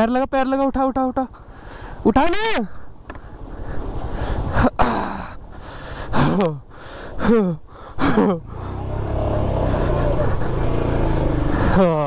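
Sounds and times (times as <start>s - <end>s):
steady engine sound: 8.2s - 12.0s.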